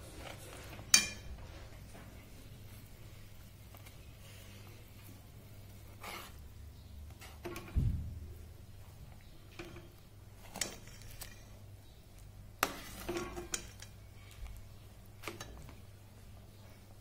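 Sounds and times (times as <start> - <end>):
spoon stirring in metal pot: 0.1 - 1.4, 7.1 - 7.8, 9.5 - 11.6, 12.6 - 14.4, 15.1 - 15.9.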